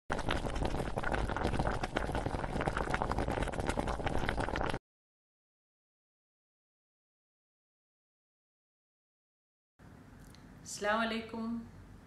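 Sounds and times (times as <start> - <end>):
pot boiling hard: 0.1 - 4.8.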